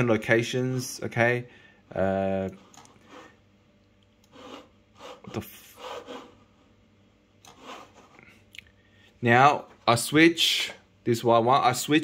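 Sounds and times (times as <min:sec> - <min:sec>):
soft rubbing and scraping: 0:02.5 - 0:03.4, 0:04.3 - 0:06.8, 0:07.5 - 0:08.4.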